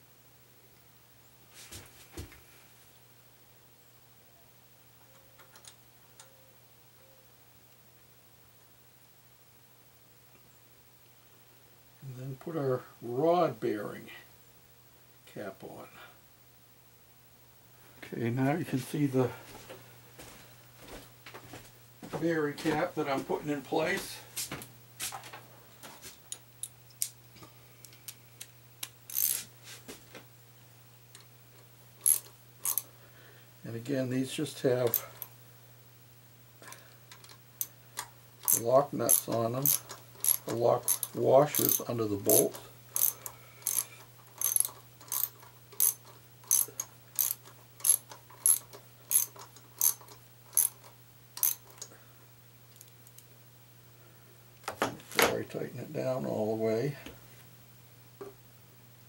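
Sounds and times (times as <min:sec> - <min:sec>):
low steady hum: 0:00.0 - 0:59.0
small metal clicks: 0:05.0 - 0:06.3, 0:26.3 - 0:29.4, 0:31.1 - 0:32.9, 0:36.6 - 0:51.9.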